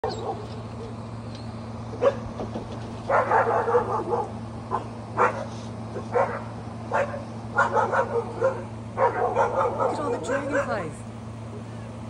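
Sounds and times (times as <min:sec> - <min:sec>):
dogs barking: 0:00.0 - 0:01.0, 0:01.9 - 0:02.4, 0:03.0 - 0:10.8.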